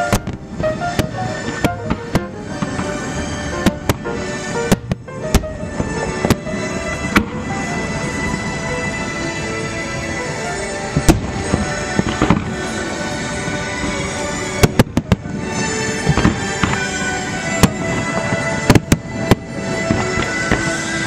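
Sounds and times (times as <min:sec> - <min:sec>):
fireworks bangs: 0:00.0 - 0:21.0
music playing: 0:00.0 - 0:21.0.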